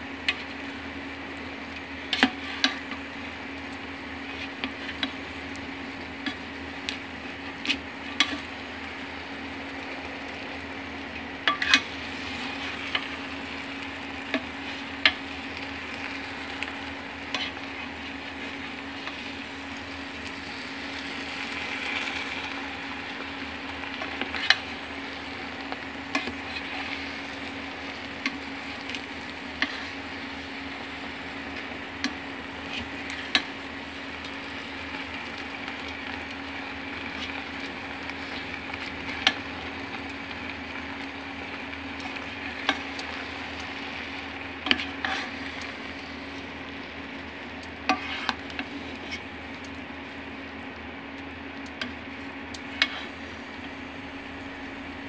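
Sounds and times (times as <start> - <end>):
noodles sizzling in a pan: 0.0 - 55.0
utensil scraping against pan: 44.6 - 45.5, 47.9 - 49.3.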